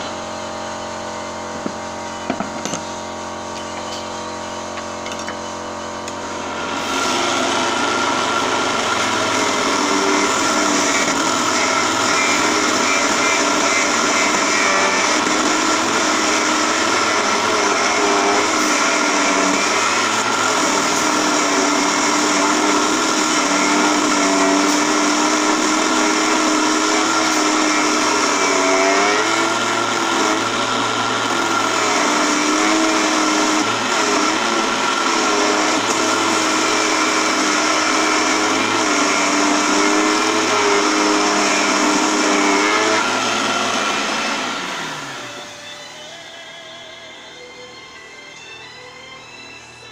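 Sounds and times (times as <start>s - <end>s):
lathe motor whine: 0.0s - 49.9s
turning tool scraping wood: 6.6s - 30.4s.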